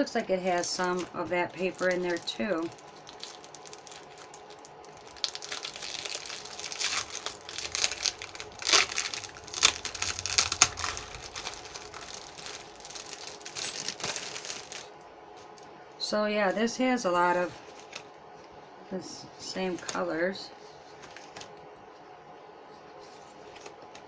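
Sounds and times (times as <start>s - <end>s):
plastic packaging crinkling: 0.0s - 15.7s.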